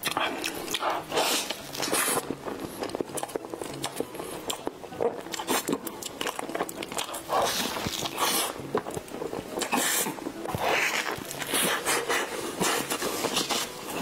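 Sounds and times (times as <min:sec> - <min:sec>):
person chewing with wet mouth sounds: 0:00.0 - 0:14.0.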